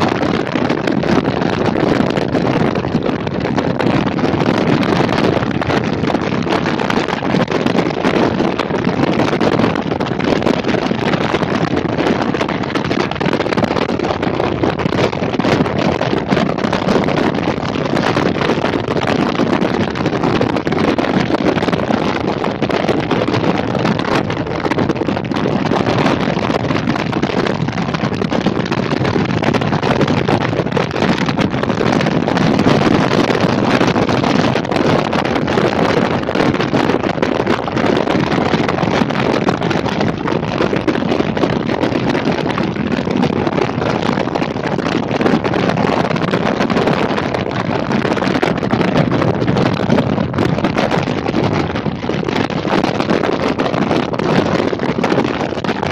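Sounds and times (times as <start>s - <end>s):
wind buffeting microphone: 0.0s - 55.9s.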